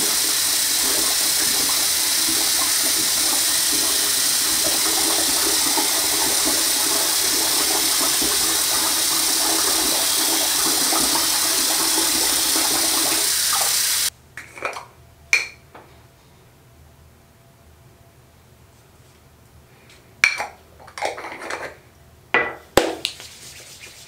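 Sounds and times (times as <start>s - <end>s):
water running from sink tap: 0.0s - 14.1s.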